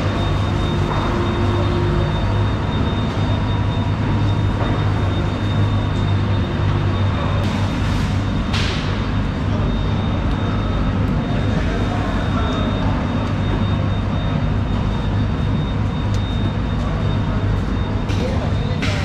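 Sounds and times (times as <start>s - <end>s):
low machinery drone: 0.0s - 19.0s.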